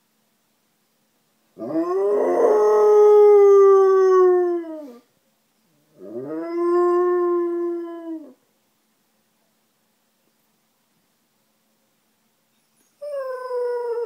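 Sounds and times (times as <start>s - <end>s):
dog howling: 1.6s - 5.0s, 6.0s - 8.4s, 13.0s - 14.0s.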